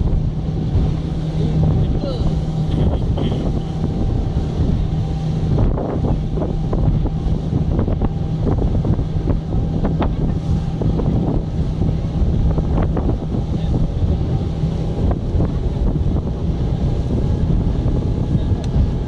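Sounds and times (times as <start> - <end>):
boat engine drone: 0.0 - 19.0
water rushing against hull: 0.0 - 19.0
wind buffeting microphone: 0.0 - 19.0.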